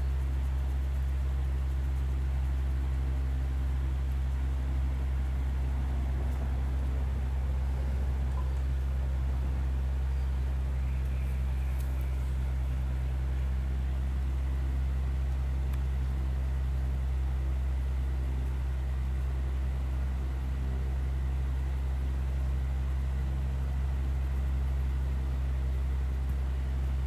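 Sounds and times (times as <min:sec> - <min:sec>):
car engine drone: 0:00.0 - 0:23.1
road noise: 0:04.4 - 0:16.1.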